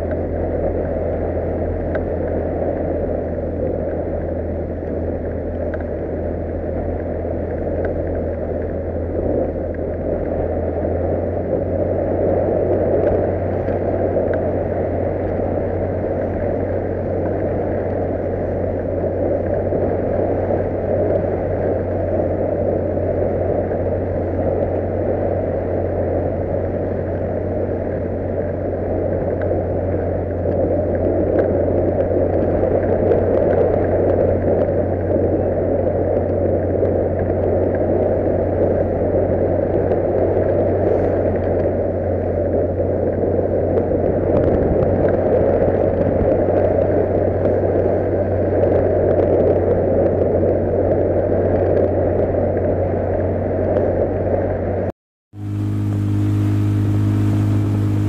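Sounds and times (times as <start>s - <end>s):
outboard motor running: 0.0s - 58.0s
water rushing from wake: 0.0s - 58.0s.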